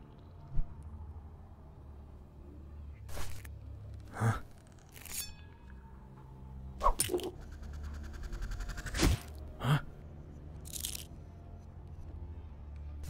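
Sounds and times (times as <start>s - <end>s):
low steady drone: 0.0s - 13.0s.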